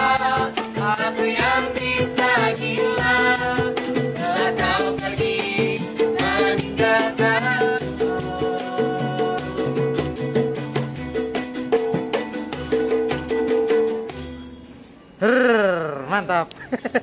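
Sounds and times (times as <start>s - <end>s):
women singing: 0.0s - 10.7s
strummed ukuleles: 0.0s - 14.2s
small drum beat: 0.0s - 14.4s
jingling tambourine: 0.0s - 15.2s, 16.7s - 17.0s.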